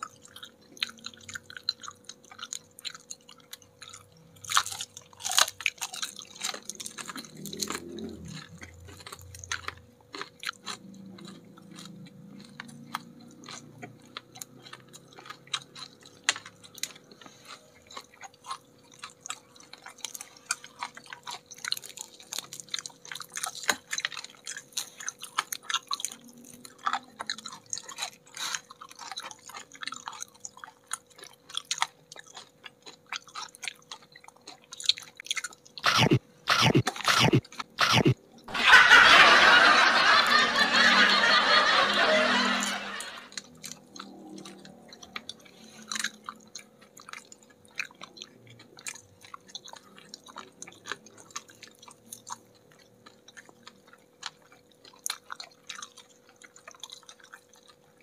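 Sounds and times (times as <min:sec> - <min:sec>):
crunching and chewing fried chicken: 0:00.0 - 0:58.0
loud dense rough noise: 0:35.8 - 0:43.4.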